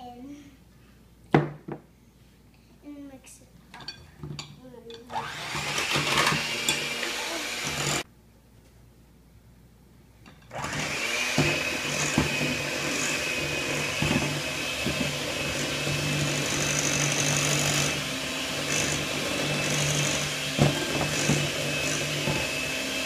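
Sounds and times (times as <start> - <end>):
electric hand mixer running: 5.1 - 8.0, 10.5 - 23.0.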